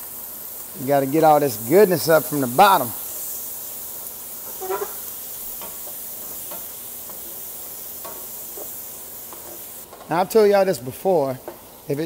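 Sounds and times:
onions sizzling in a pan: 0:00.0 - 0:12.0
wooden spoon scraping a pan: 0:04.5 - 0:05.1.

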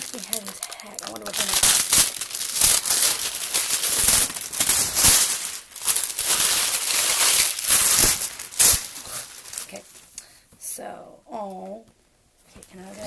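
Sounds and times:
packaging rustling and crinkling: 0:00.0 - 0:10.1.

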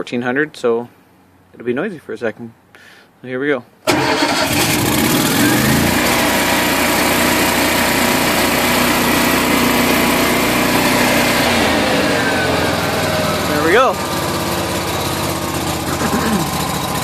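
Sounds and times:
generator engine revving and running: 0:03.9 - 0:17.0.

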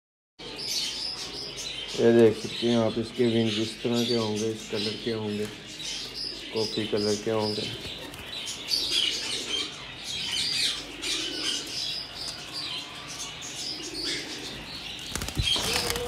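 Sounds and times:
small birds chirping: 0:00.4 - 0:16.0
bird wings flapping: 0:15.0 - 0:16.0.

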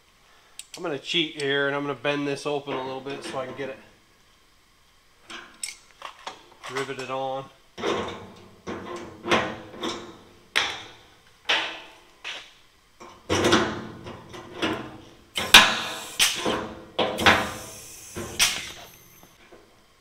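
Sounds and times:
pneumatic rivet gun snaps: 0:15.4 - 0:16.6, 0:17.2 - 0:19.3.

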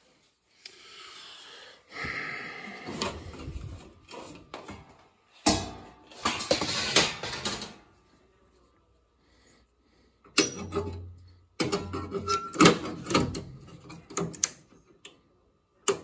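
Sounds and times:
rustling and clattering of wiring: 0:02.9 - 0:08.0.

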